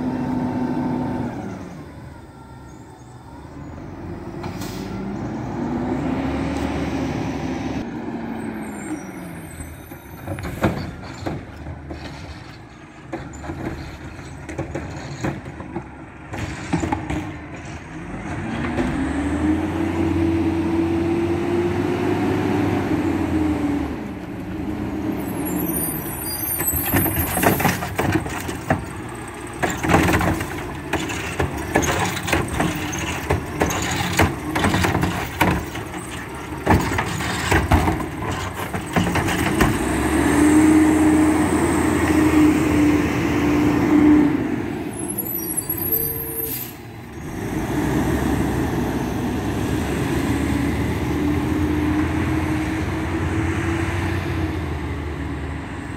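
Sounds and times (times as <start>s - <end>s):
air brakes hissing: 4.4s - 5.1s
metal clanks and bangs: 10.2s - 18.8s, 26.7s - 40.0s.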